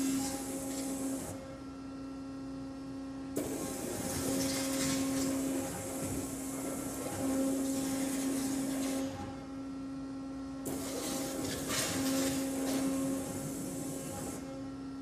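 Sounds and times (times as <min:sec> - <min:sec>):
machine hum: 0:00.0 - 0:15.0.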